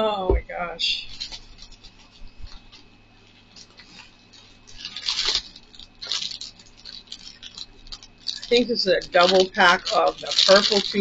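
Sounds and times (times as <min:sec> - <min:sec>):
plastic packaging crinkling: 0:00.6 - 0:11.0.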